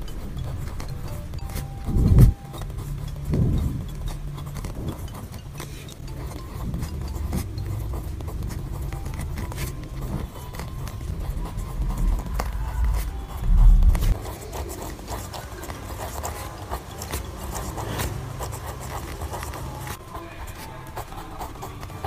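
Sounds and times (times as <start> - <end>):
pen scratching on paper: 0.0 - 22.0
low rumble: 11.1 - 14.2.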